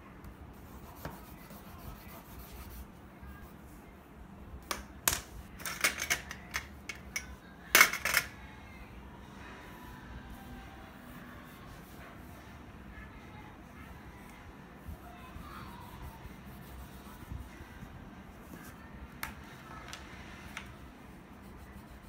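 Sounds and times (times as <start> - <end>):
crayons scratching on paper: 0.6 - 3.5, 21.2 - 22.0.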